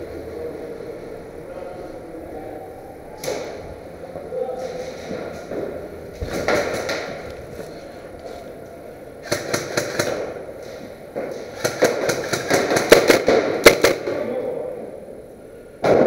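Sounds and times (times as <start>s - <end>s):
airsoft guns firing: 6.2s - 7.2s, 9.2s - 10.5s, 11.2s - 14.5s.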